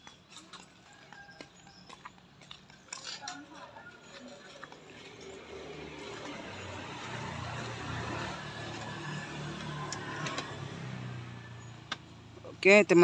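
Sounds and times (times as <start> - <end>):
vehicle engine passing: 3.3 - 13.0.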